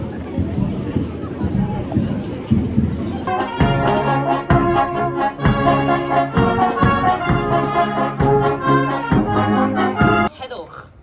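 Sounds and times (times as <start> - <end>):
steady drum beat: 0.3 - 10.3
brass chords: 3.3 - 10.3.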